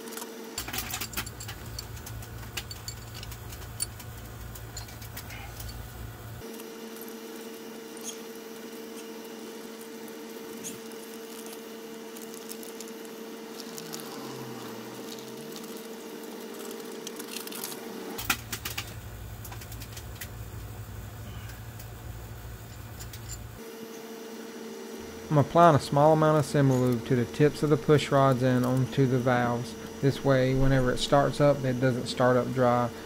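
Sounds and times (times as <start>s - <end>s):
faint steady hum: 0.0s - 33.0s
small metal parts clicking: 0.1s - 5.9s, 22.7s - 23.5s.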